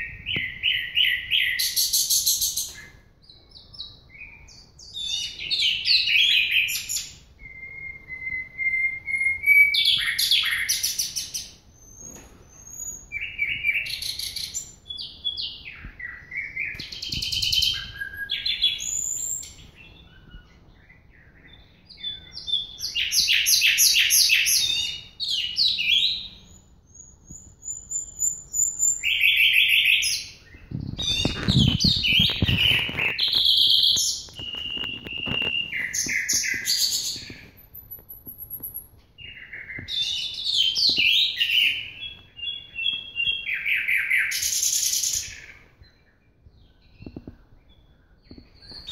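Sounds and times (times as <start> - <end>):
bird singing whistles and trills: 0.0 - 48.9.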